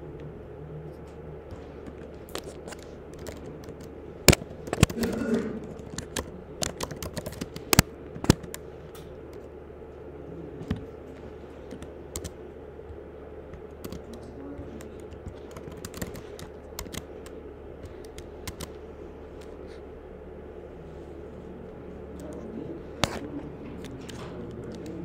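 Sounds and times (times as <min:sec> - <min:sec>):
typing on computer keyboard: 0:01.9 - 0:08.6, 0:11.7 - 0:12.4, 0:13.5 - 0:18.8.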